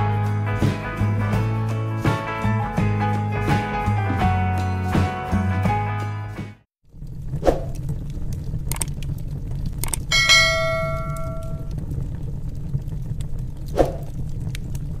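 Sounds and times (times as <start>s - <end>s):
log fire rumbling and crackling: 0.0s - 5.6s, 6.8s - 15.0s
clicks: 9.8s - 11.7s
bell-like notification ding: 10.1s - 11.7s.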